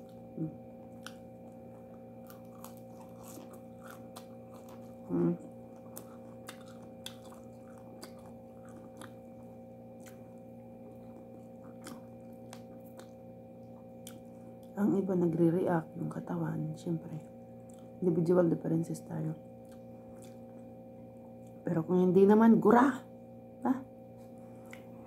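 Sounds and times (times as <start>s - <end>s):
person chewing: 0.0s - 14.8s, 17.2s - 18.0s, 19.6s - 21.6s, 24.5s - 25.0s
steady low hum: 0.0s - 25.0s.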